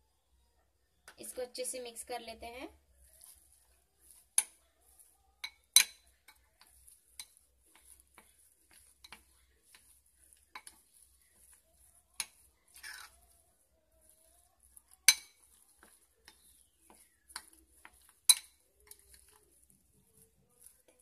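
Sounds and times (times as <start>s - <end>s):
metal spoon clinking in bowl: 5.4s - 10.8s, 14.8s - 19.4s.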